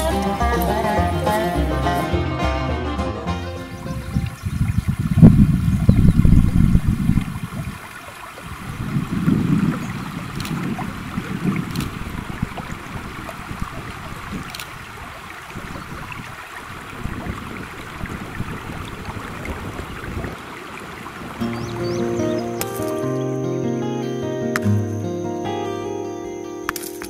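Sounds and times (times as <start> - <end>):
wind rumbling on microphone: 3.5 - 22.4
river rushing over gravel: 3.6 - 23.2
sharp clicks: 10.4 - 10.6.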